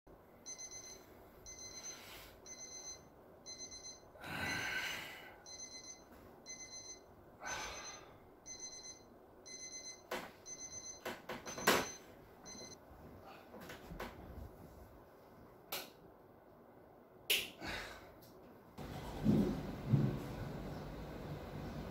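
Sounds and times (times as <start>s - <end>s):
electronic alarm beeping: 0.4s - 4.6s, 5.5s - 12.8s.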